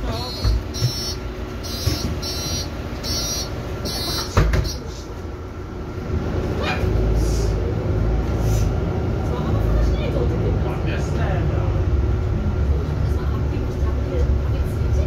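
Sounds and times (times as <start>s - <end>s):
bus door warning beeping: 0.0s - 4.8s
bus engine rumble: 0.0s - 15.0s.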